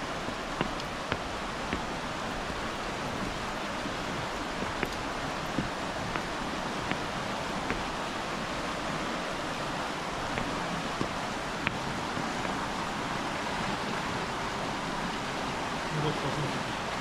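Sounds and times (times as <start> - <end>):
river rushing: 0.0 - 17.0.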